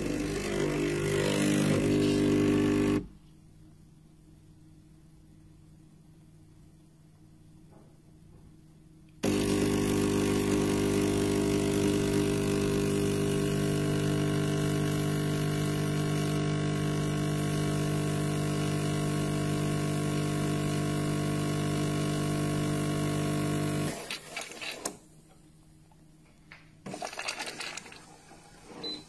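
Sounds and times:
espresso machine pump humming: 0:00.0 - 0:03.1, 0:09.2 - 0:24.8.

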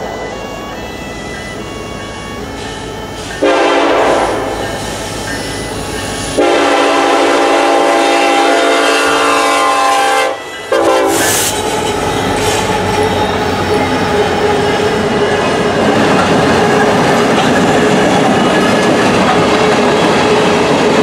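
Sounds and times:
locomotive air horn blasts: 0:00.0 - 0:15.8
diesel locomotives running: 0:00.0 - 0:21.0.

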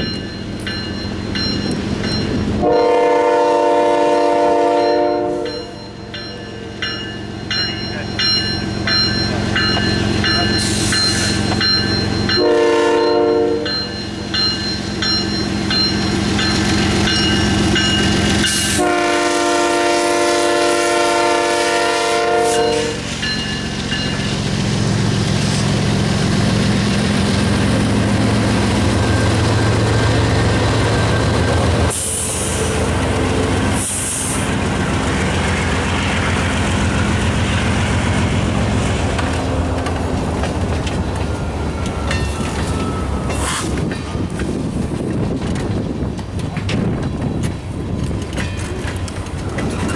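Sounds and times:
crossing bell ringing: 0:00.0 - 0:19.2, 0:22.3 - 0:24.6, 0:27.5 - 0:33.8, 0:41.2 - 0:44.3
locomotive engines droning: 0:00.0 - 0:49.9
train air horn blasts: 0:02.6 - 0:05.7, 0:12.3 - 0:13.8, 0:18.5 - 0:23.1.

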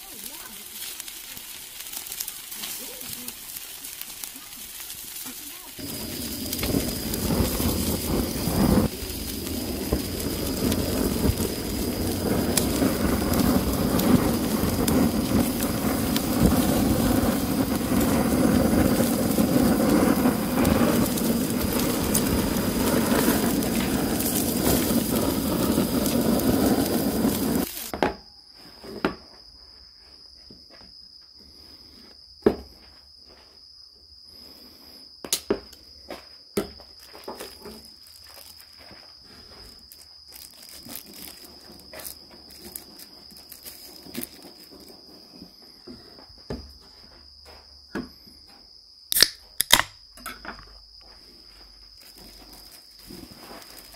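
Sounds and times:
crackling: 0:00.0 - 0:27.9, 0:37.0 - 0:45.7, 0:51.2 - 0:53.9
butane torch flame hissing: 0:00.0 - 0:28.0, 0:34.3 - 0:35.1, 0:37.2 - 0:46.6, 0:51.1 - 0:53.9.

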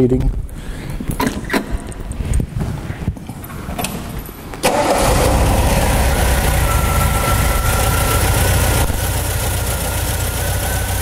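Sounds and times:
car engine starting and running: 0:04.6 - 0:11.0
thin engine whine: 0:04.6 - 0:11.0.

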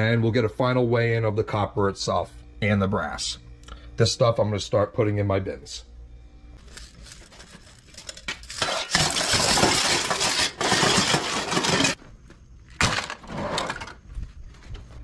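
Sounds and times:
metal scrap clattering into bin: 0:07.6 - 0:12.0.

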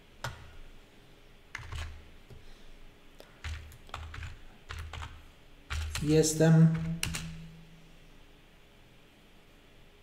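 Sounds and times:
computer keyboard typing: 0:01.5 - 0:02.0, 0:03.3 - 0:07.4.

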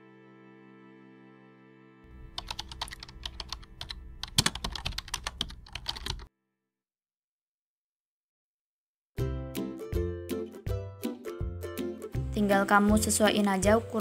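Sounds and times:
soft background music: 0:09.2 - 0:14.0.

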